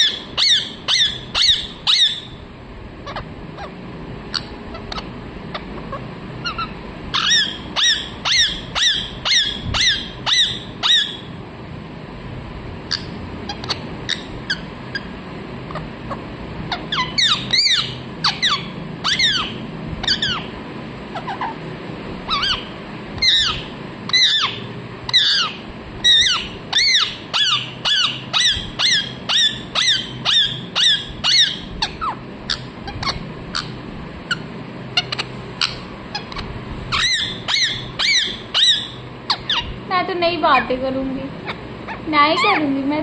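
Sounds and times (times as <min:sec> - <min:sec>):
parakeet squawking: 0:00.0 - 0:02.4, 0:03.0 - 0:11.3, 0:12.9 - 0:20.5, 0:21.1 - 0:21.6, 0:22.3 - 0:39.8, 0:40.4 - 0:42.8.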